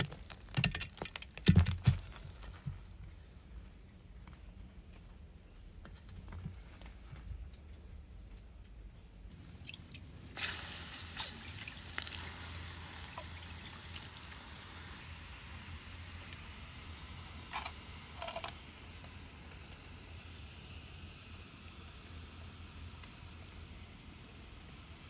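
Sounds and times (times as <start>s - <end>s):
slag crunching and scraping: 0.0s - 2.8s
hiss of falling ash: 10.2s - 25.0s.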